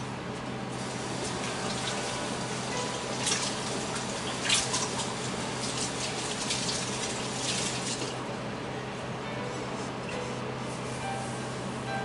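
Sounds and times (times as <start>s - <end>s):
water running: 0.8s - 8.2s.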